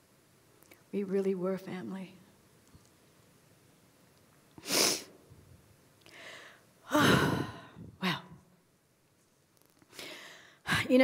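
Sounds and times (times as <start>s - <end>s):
woman breathing: 6.0s - 8.2s, 9.9s - 10.9s.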